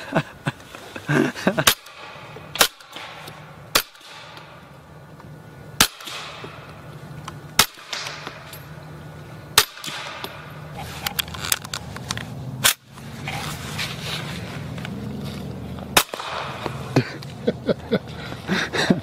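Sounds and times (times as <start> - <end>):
suppressed rifle shots: 1.6 - 4.6, 5.8 - 6.8, 7.5 - 8.8, 9.5 - 10.7, 15.9 - 16.8.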